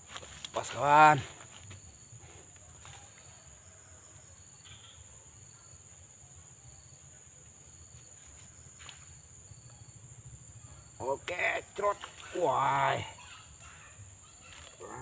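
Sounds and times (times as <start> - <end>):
high-pitched insect drone: 2.9 - 7.0, 7.9 - 15.0.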